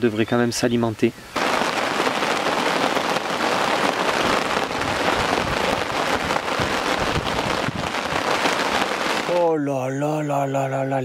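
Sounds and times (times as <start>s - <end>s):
heavy rain on a lake: 1.3s - 9.6s.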